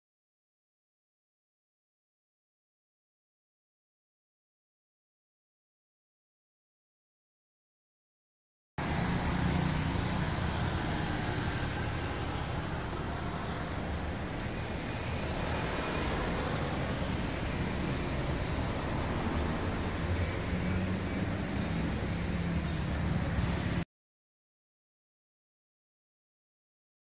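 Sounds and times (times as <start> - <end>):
road traffic engine hum: 8.8 - 23.8.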